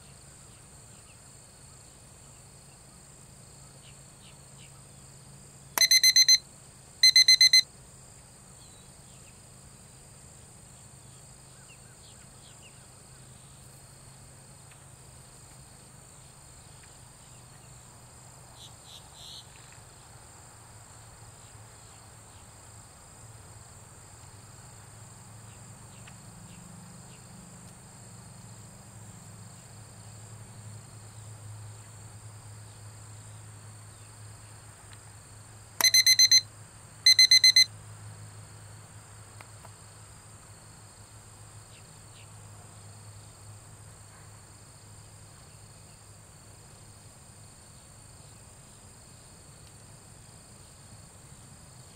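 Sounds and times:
electronic timer beeps: 5.8 - 6.4, 7.0 - 7.6, 35.8 - 36.4, 37.1 - 37.7
insects trilling: 7.0 - 7.6, 8.5 - 27.4, 35.2 - 36.4.

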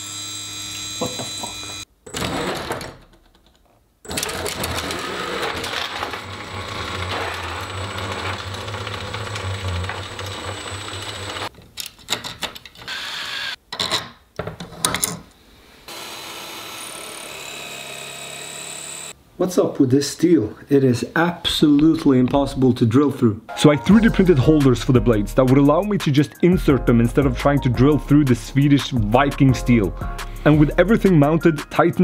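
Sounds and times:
electric motor whirring: 0.0 - 1.8, 6.1 - 11.5.

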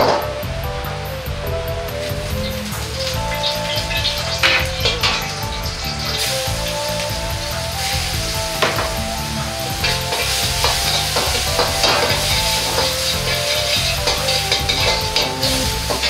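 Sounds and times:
ginger sizzling in hot oil: 1.9 - 16.0
metal ladle scraping wok: 2.5 - 7.1, 9.7 - 16.0.

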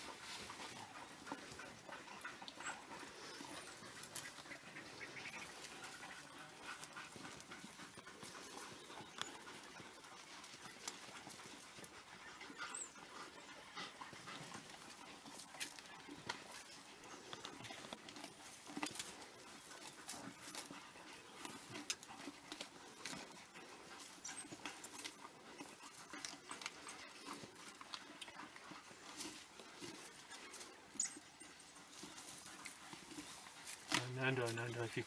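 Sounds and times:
faint panting: 0.0 - 35.0
tearing and crunching clicks: 33.7 - 34.1.

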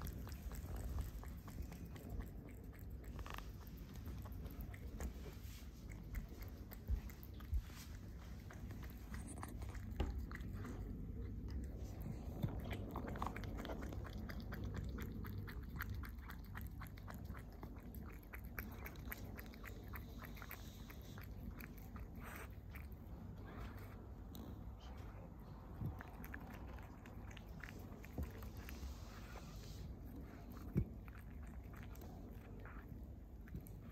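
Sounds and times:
cat chewing food: 0.0 - 33.9.

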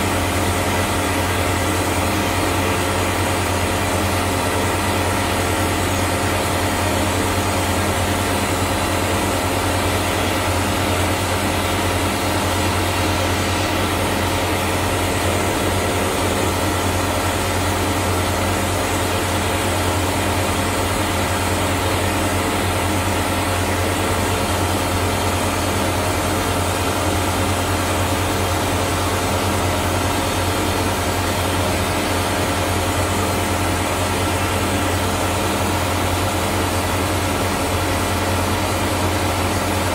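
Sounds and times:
low machine hum: 0.0 - 39.9.

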